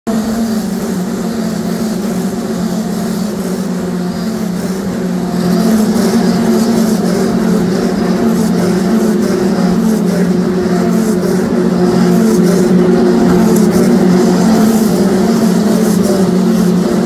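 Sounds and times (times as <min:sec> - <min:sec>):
racing car engines droning: 0:00.1 - 0:17.0.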